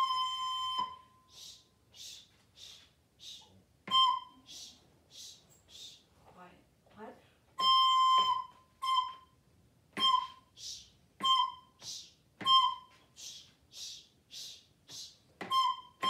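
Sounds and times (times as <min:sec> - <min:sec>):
recorder playing short notes: 0:00.0 - 0:01.6, 0:03.9 - 0:04.7, 0:07.6 - 0:09.4, 0:10.0 - 0:13.0, 0:15.4 - 0:16.0
whispered shushes: 0:01.3 - 0:03.7, 0:04.3 - 0:06.4, 0:10.5 - 0:11.0, 0:12.9 - 0:15.3.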